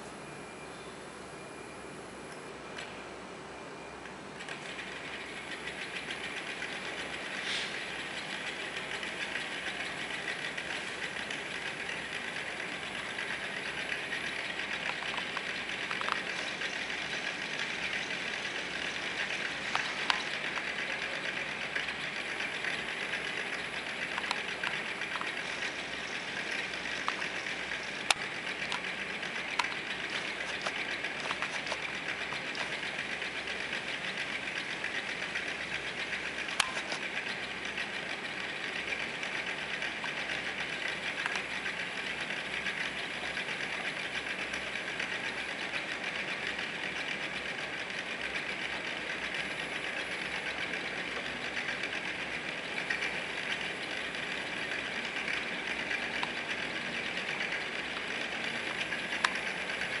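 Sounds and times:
small motor rattling buzz: 0:04.3 - 1:00.0
sharp clicks: 0:04.4 - 0:21.0, 0:21.8 - 0:37.8, 0:38.4 - 0:42.2, 0:54.7 - 1:00.0.

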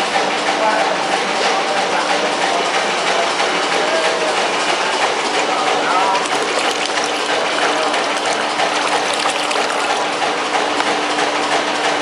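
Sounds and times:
pump humming: 0:05.9 - 0:11.1
water splashing into bucket: 0:06.2 - 0:10.8.

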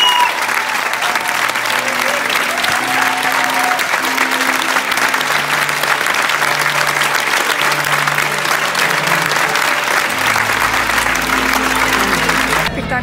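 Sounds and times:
audience applauding: 0:00.0 - 0:12.7
quiet music: 0:01.1 - 0:13.0.

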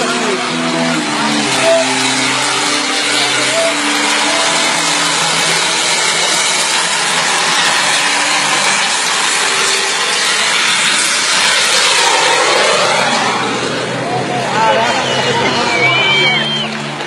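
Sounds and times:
jet engine running: 0:00.0 - 0:17.0.

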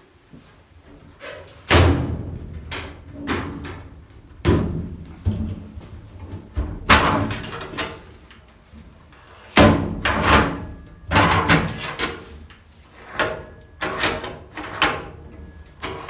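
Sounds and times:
metal door banging shut: 0:01.6 - 0:05.6, 0:06.5 - 0:08.1, 0:09.6 - 0:12.3.

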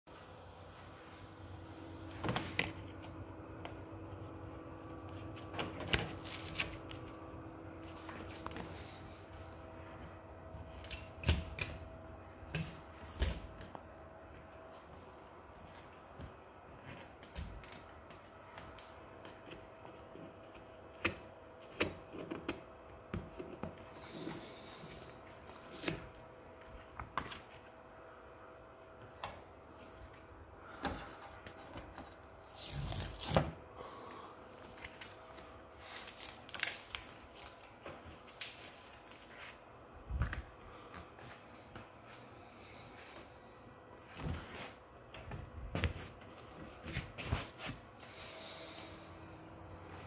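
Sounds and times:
crinkling plastic rustles: 0:02.1 - 0:09.7, 0:34.4 - 0:43.1.

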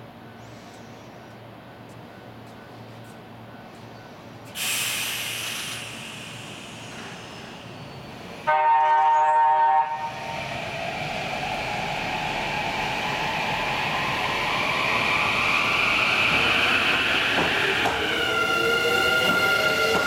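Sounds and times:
train running noise: 0:00.8 - 0:20.0
train horn: 0:08.4 - 0:10.2.

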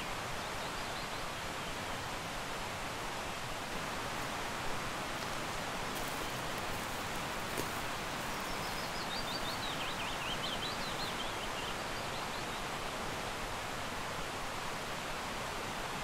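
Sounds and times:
fast-flowing stream rushing: 0:00.0 - 0:16.0
songbird warbling and trilling: 0:06.2 - 0:12.3.

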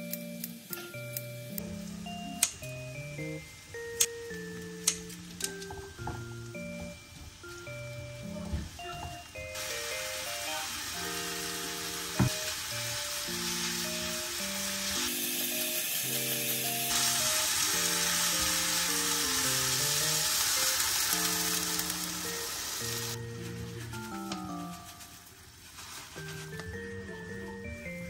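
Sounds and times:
background music with mallet tones: 0:00.0 - 0:12.5, 0:26.2 - 0:28.0
food sizzling in a wok: 0:00.0 - 0:27.1.

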